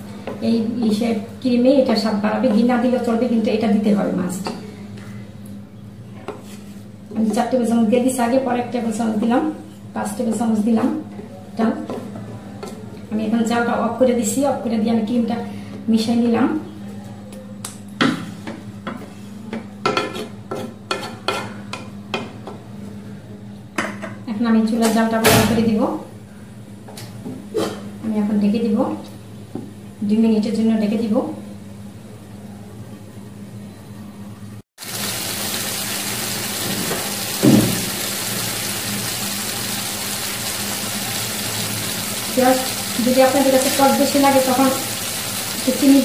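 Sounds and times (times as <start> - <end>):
gravy sizzling and bubbling: 34.8 - 46.0.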